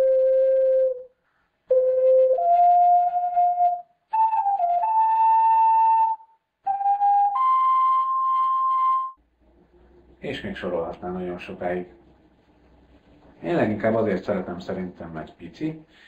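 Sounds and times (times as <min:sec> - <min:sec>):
ocarina playing slow tune: 0:00.0 - 0:09.2.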